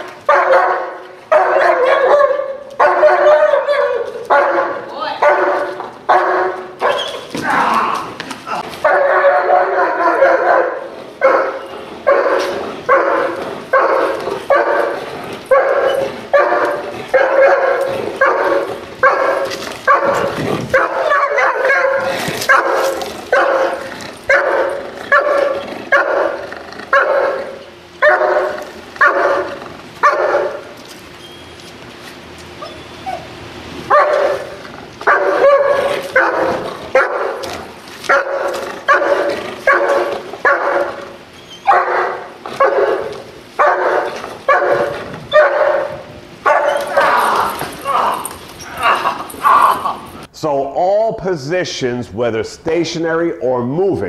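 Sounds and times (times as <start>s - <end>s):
dog barking: 0.2s - 7.3s, 8.8s - 30.7s, 33.9s - 47.3s.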